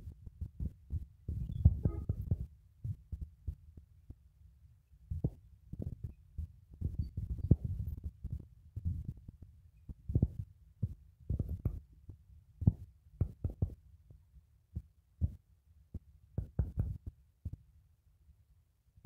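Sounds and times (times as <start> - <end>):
thumps on microphone: 0.4 - 3.6, 5.1 - 6.2, 6.8 - 9.3, 9.9 - 11.9, 12.6 - 13.8, 16.4 - 17.2.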